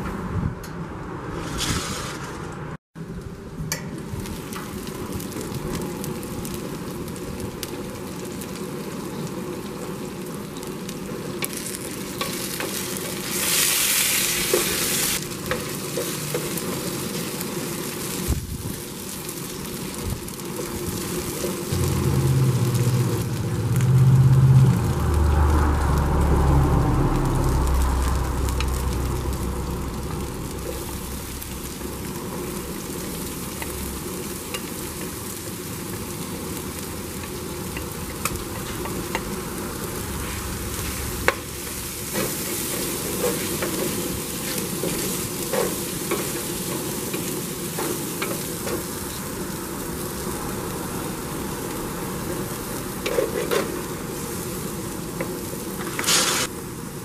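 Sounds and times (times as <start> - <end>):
chicken sizzling in oil: 4.0 - 57.0
strong low rumble: 21.7 - 34.0, 39.5 - 42.1.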